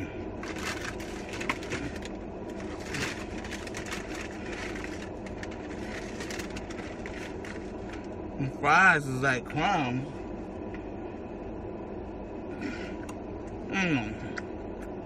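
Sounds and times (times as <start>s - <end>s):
low rumble inside car: 0.0s - 15.0s
food crackling as handled: 0.4s - 8.2s.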